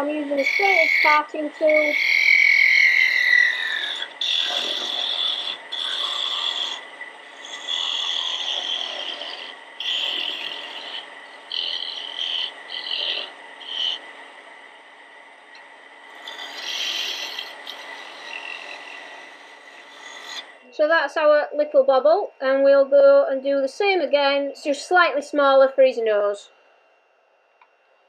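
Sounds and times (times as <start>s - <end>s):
lathe tool scraping wood: 0.0s - 14.7s, 16.0s - 20.6s.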